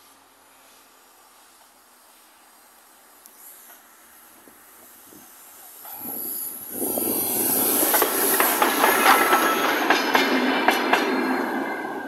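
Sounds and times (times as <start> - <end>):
steam hiss: 0.0 - 12.0
steam locomotive passing: 0.0 - 12.0
wheels clicking and knocking: 3.7 - 11.3.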